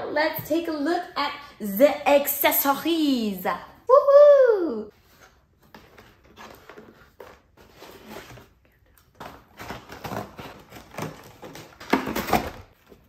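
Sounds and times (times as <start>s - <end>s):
cardboard packaging rustling: 5.0s - 13.0s.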